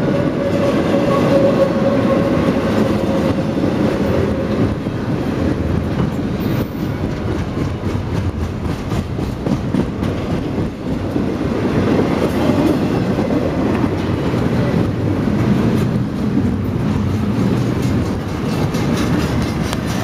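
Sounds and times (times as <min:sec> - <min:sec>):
freight train rolling past: 0:00.0 - 0:20.0
wheels clicking over rails: 0:11.9 - 0:20.0.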